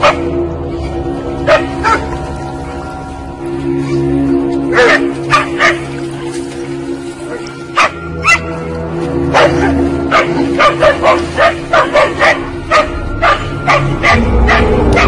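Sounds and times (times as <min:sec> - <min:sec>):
dog barking rapidly: 0:07.8 - 0:08.5, 0:09.4 - 0:15.0.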